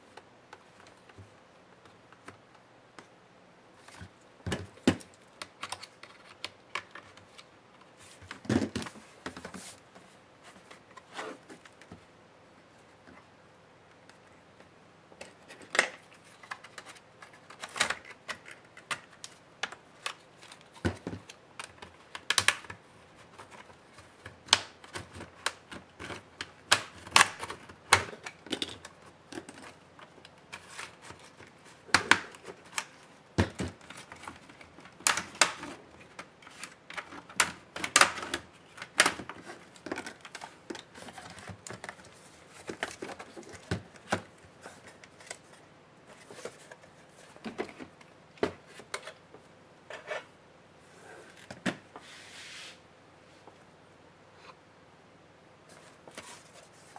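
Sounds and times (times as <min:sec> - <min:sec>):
plastic parts knocking together: 0:31.9 - 0:36.2.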